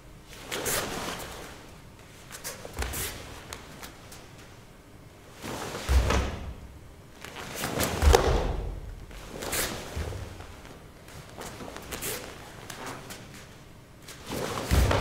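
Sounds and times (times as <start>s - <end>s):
bare feet thudding on mat: 5.6s - 6.7s, 7.3s - 12.9s, 14.5s - 15.0s
cloth swishing sharply: 14.1s - 15.0s.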